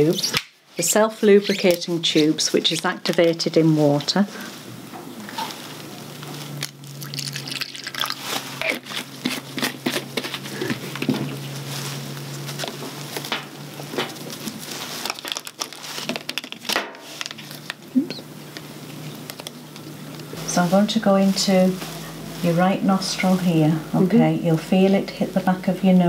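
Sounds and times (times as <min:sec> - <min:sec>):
water pouring into pot: 0:07.0 - 0:08.3
plastic crinkling and clicks: 0:14.9 - 0:17.9.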